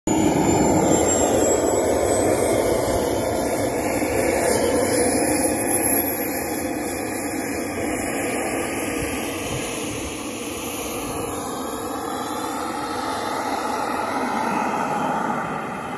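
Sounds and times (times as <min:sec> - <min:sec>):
model jet turbine running: 0:00.1 - 0:15.9.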